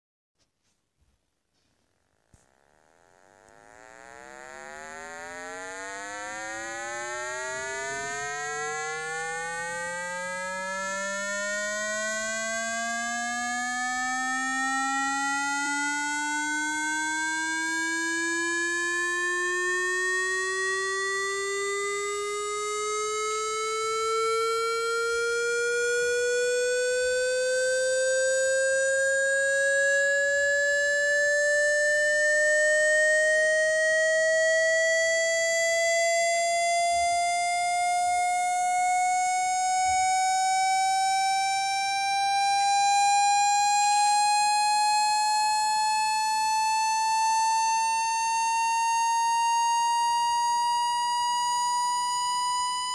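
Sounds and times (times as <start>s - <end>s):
buzzy electronic rising tone: 2.4s - 44.7s.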